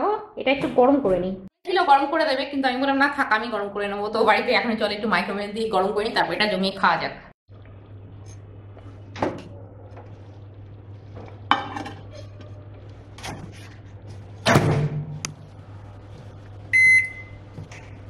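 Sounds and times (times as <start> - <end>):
microwave humming: 7.5 - 18.0
short keypad beep: 16.8 - 17.4.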